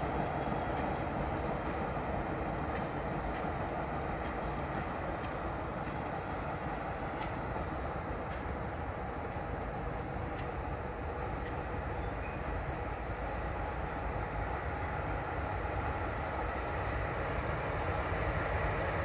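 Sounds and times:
distant train rumble and hiss: 0.0 - 19.0.

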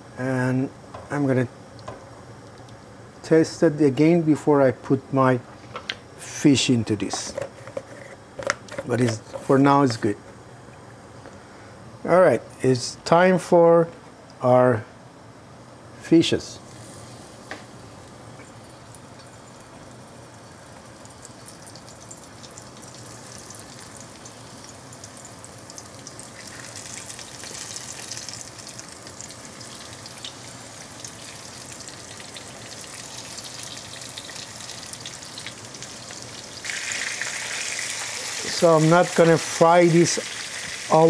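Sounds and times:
fish sizzling in hot oil: 20.1 - 41.0.

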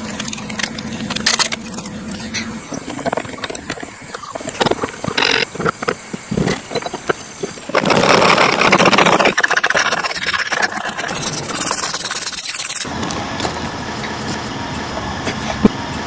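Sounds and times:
rapid scraping: 0.0 - 13.0
tool cutting wood: 4.5 - 12.9.

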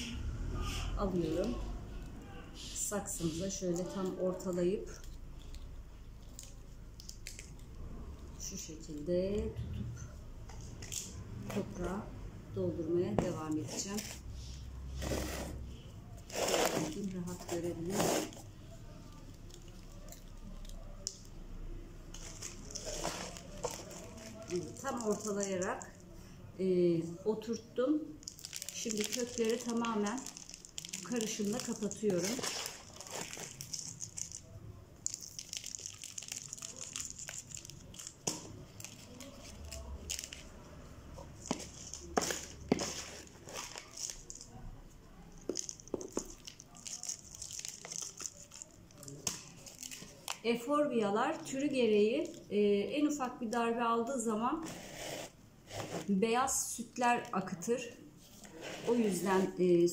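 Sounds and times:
gritty potting mix scraping: 16.2 - 18.5, 41.2 - 44.2, 58.2 - 59.7
gloved hands crinkling: 22.1 - 26.0, 28.2 - 40.7, 41.3 - 44.6, 45.3 - 50.4
potting mix rustling and crunching: 22.1 - 26.0, 28.2 - 44.7, 45.4 - 50.5.

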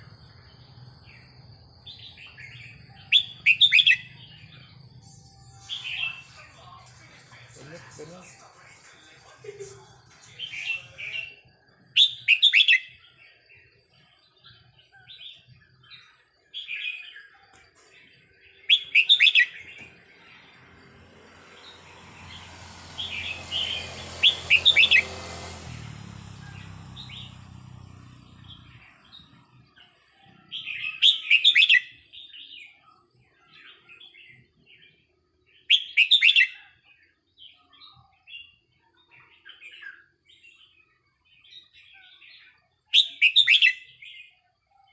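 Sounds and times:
soft bird chirps: 0.0 - 7.8, 9.5 - 25.6
bird singing warbled phrases: 0.0 - 44.9.

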